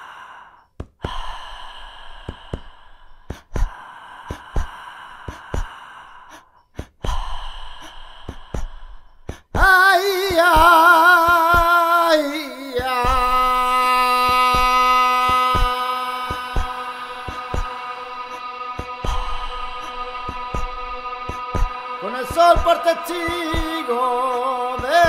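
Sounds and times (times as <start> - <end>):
breathy sighing sounds: 0.0 - 10.4, 12.8 - 24.9
man wailing in song: 9.6 - 25.0
electronic flamenco music: 14.4 - 25.0.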